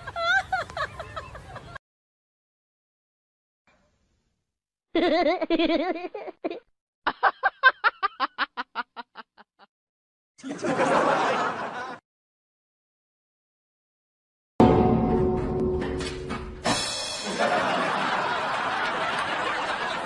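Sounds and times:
person laughing: 0.0 - 1.8, 4.9 - 9.7
crowd noise: 17.2 - 20.0.

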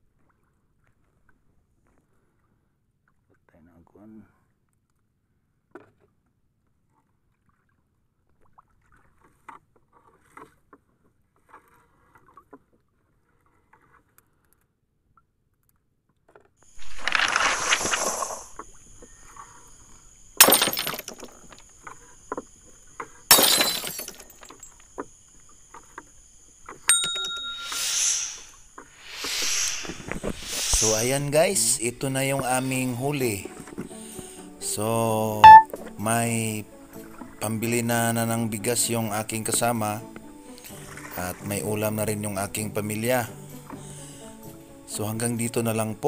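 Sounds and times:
brief chime: 26.9 - 28.4, 35.4 - 35.7
thin high tone: 26.9 - 31.8, 35.4 - 35.7
whoosh effects: 27.6 - 31.4.

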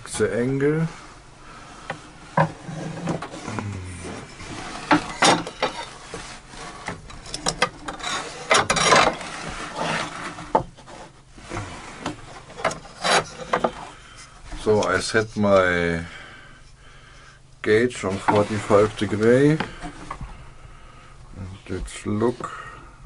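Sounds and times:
wooden parts rubbing and scraping: 0.8 - 16.1, 17.7 - 20.4.

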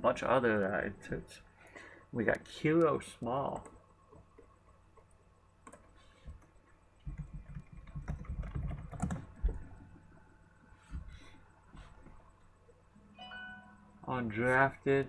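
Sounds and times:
computer keyboard typing: 3.5 - 9.8.

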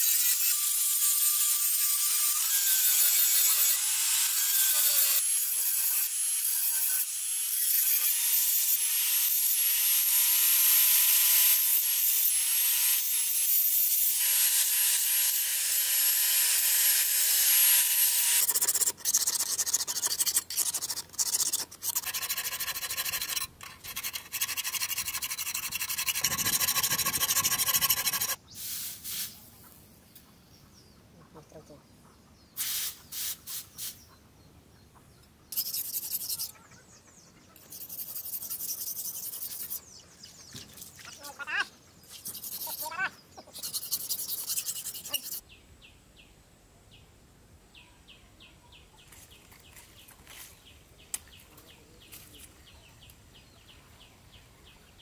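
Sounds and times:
angle grinder grinding metal: 0.0 - 28.4, 43.6 - 45.4.

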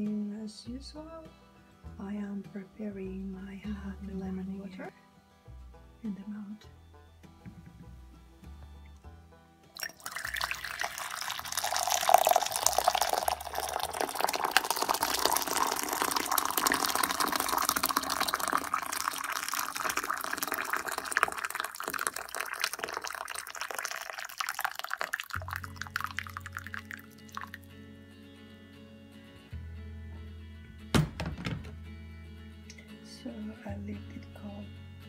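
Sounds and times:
background music: 0.0 - 35.0
water pouring into a cup: 9.8 - 27.7.

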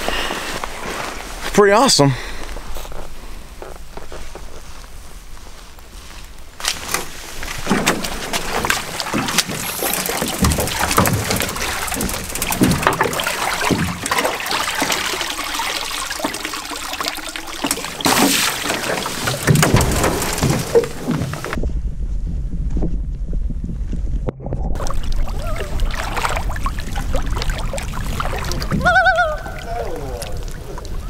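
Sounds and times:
water sloshing and splashing: 2.6 - 21.6, 24.7 - 31.0
canoe hull knocking and scraping: 6.6 - 21.7.

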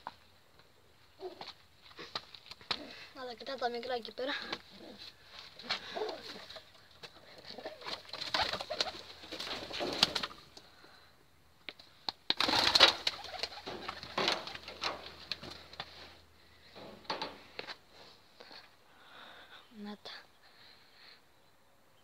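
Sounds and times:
pigeons cooing: 1.2 - 1.5, 5.7 - 10.4, 12.4 - 15.6.

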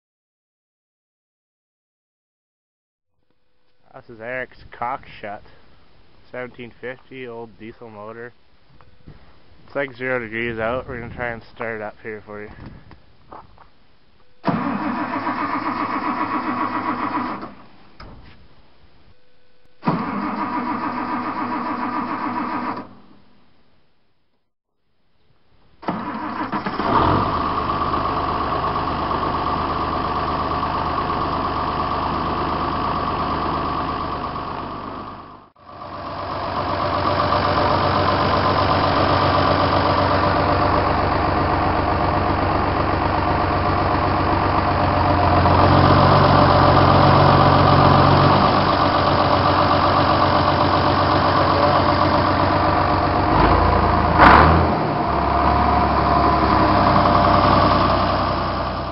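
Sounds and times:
diesel tractor engine idling: 14.5 - 18.7, 20.0 - 23.0, 25.8 - 58.9.

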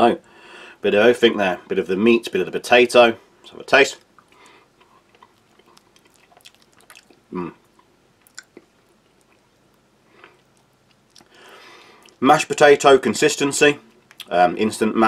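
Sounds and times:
man chewing food: 4.0 - 12.2, 13.8 - 14.3.

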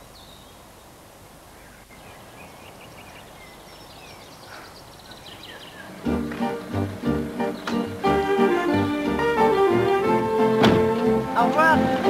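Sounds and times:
birds chirping: 0.0 - 12.0
outdoor background hiss: 0.0 - 12.0
music with keyboard chords: 6.1 - 12.0.

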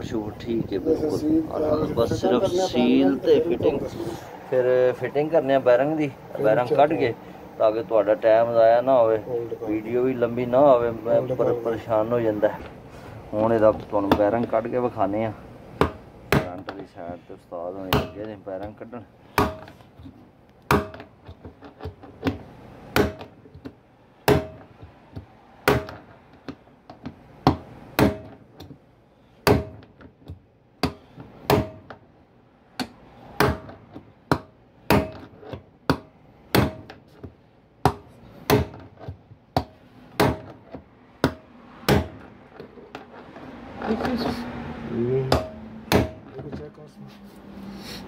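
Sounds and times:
hammer striking steel punch: 19.4 - 19.8, 20.7 - 21.1, 22.9 - 23.3, 24.3 - 24.7, 25.6 - 26.0, 27.5 - 28.4, 29.4 - 29.8, 30.8 - 31.9, 32.8 - 35.3, 35.9 - 36.9, 39.6 - 40.6, 41.2 - 42.2, 45.3 - 46.3.

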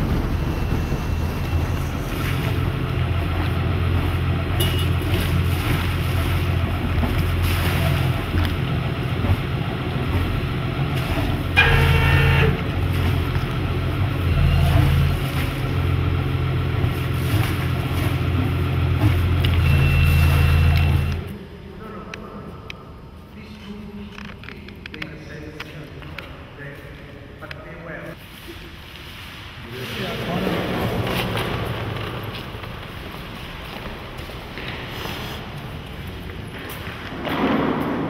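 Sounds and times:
high-pitched squeal: 0.0 - 2.8
motorboat engine droning: 0.0 - 21.3.

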